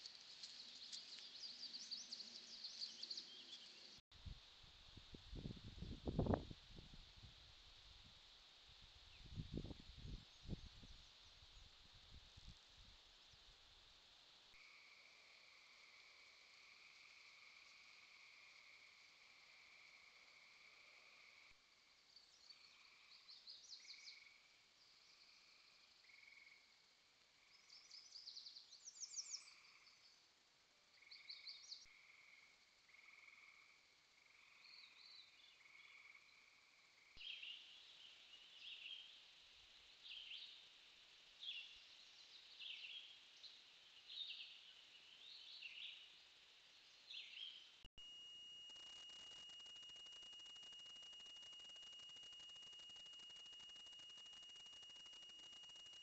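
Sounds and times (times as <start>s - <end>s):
steady high whine: 48.0s - 56.0s.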